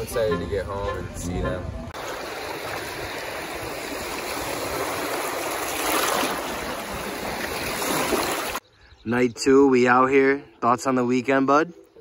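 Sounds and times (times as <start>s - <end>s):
lake water rushing and lapping: 2.0s - 8.6s.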